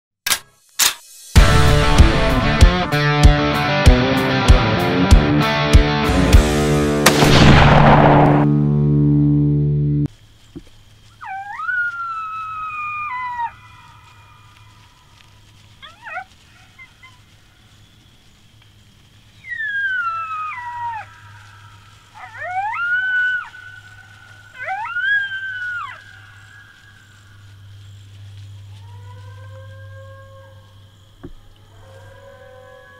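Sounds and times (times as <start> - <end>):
coyotes howling: 11.1 - 18.4, 19.3 - 32.9
coyote yips: 11.2 - 14.0, 15.8 - 17.3, 19.4 - 27.0.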